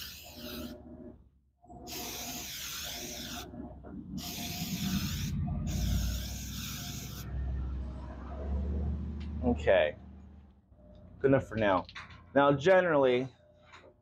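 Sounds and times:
spray paint can hissing: 0.0 - 0.8, 1.9 - 3.5, 4.2 - 7.3
low rumble: 3.6 - 6.2.

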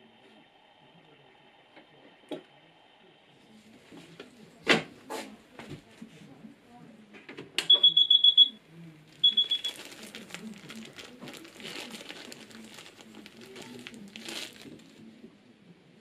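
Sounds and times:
plastic bag crinkling: 9.0 - 15.0.

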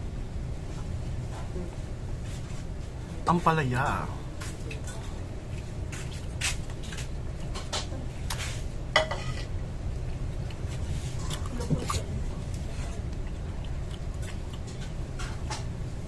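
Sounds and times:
steady low hum: 0.0 - 16.0
metal spoon scraping a plate: 9.0 - 9.5.

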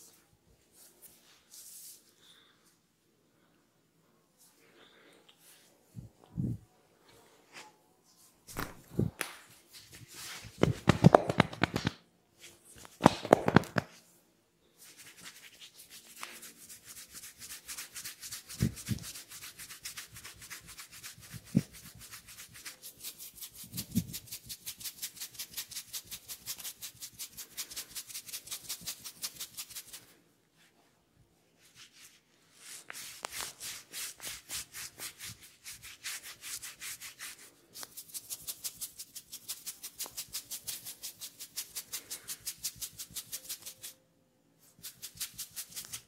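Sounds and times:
hands rubbing face: 7.5 - 14.0, 14.8 - 30.2, 31.6 - 44.0, 44.6 - 46.0
fingertips scratching hair: 9.8 - 12.0.

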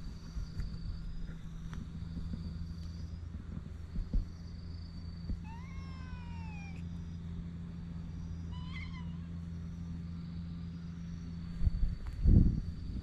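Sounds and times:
low background hum: 0.0 - 13.0
cat meowing: 5.4 - 6.8, 8.5 - 9.3.

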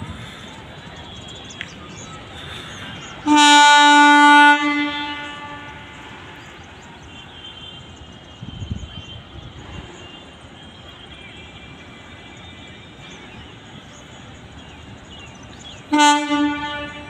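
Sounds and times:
locomotive air horn blast: 3.0 - 6.4, 15.9 - 17.0.

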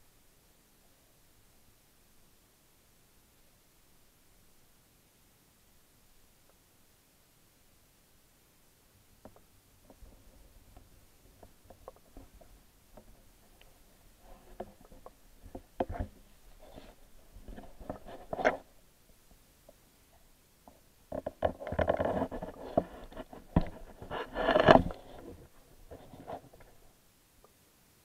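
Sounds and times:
underwater clicks and scrapes: 9.2 - 18.8, 20.6 - 26.9.

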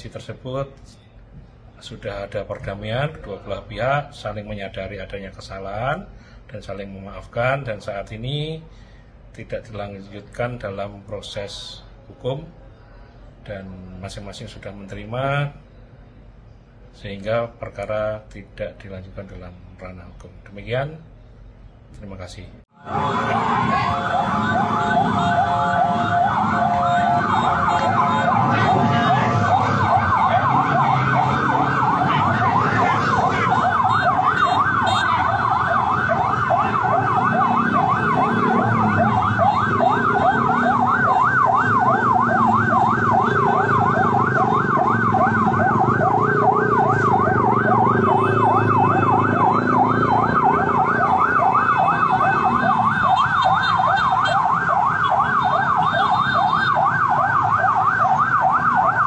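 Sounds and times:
low street noise rumble: 0.0 - 59.0
emergency siren yelping: 22.8 - 59.0.

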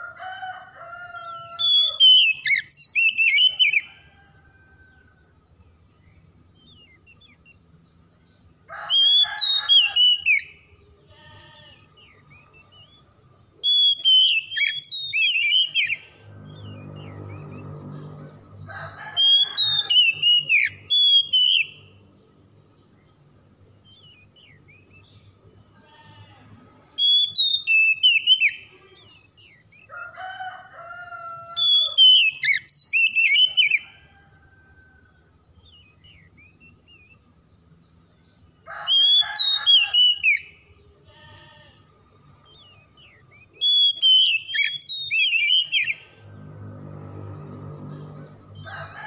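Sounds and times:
bird singing whistled phrases: 13.6 - 16.0, 27.0 - 28.6, 43.6 - 46.0.

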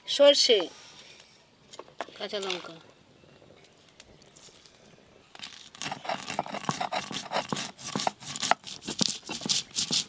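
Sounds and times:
seeds cracking: 3.6 - 10.0
stone scraping on stone: 5.4 - 10.0.

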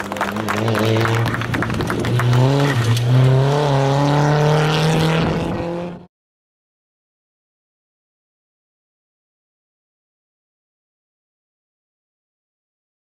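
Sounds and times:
rally car engine revving: 0.0 - 6.1.

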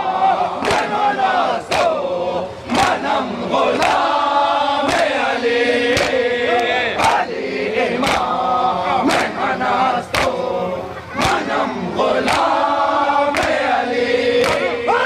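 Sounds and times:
men chanting in unison: 0.0 - 15.0
hands slapping chests: 5.9 - 7.2, 8.0 - 8.3, 10.1 - 10.4, 12.2 - 12.6, 14.4 - 14.7.

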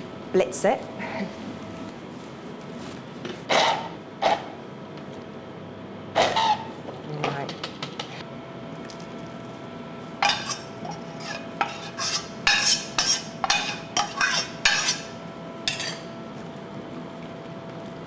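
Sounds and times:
saucepan scraping on metal sieve: 10.2 - 16.0.

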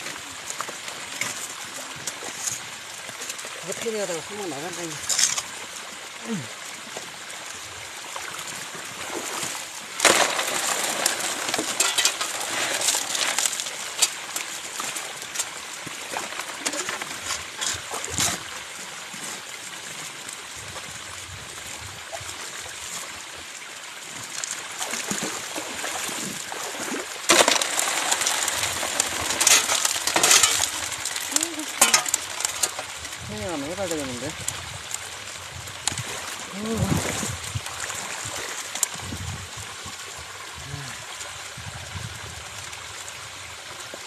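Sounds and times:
water running through sluice box: 0.0 - 44.0
gravel rattling over metal: 27.3 - 32.9.

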